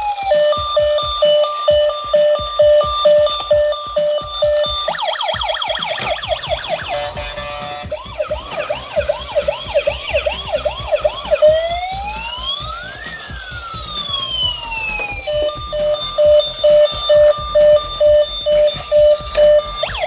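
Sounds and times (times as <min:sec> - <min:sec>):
pulsing electronic beeping tune: 0:00.0 - 0:20.0
toy electronic siren: 0:00.0 - 0:20.0.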